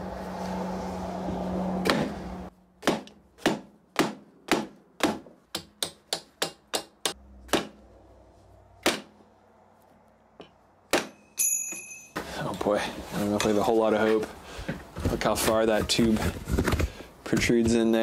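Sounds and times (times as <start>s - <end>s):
hammer striking wooden block: 2.8s - 7.8s, 8.8s - 9.2s, 10.4s - 11.9s.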